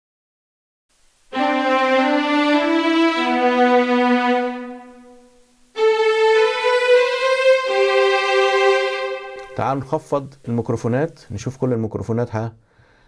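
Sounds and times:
sustained bowed string chords: 1.3s - 9.9s.

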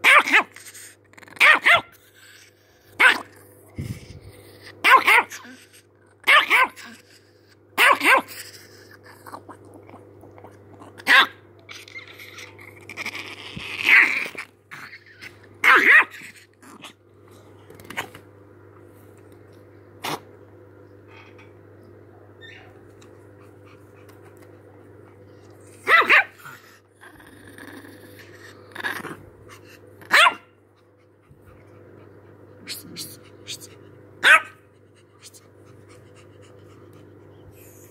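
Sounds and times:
small dog barking: 0.0s - 0.6s, 1.4s - 2.0s, 3.0s - 3.3s, 4.8s - 5.6s, 6.2s - 7.0s, 7.8s - 8.4s, 11.0s - 11.4s, 15.6s - 16.3s, 25.8s - 26.5s, 30.0s - 30.5s, 34.2s - 34.6s
faint steady hum: 0.0s - 37.9s
dog snapping and mouthing: 17.7s - 18.2s.

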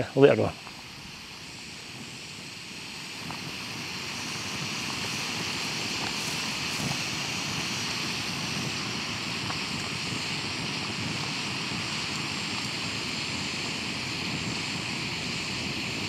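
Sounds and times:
gas stove burner hissing: 0.0s - 16.0s.

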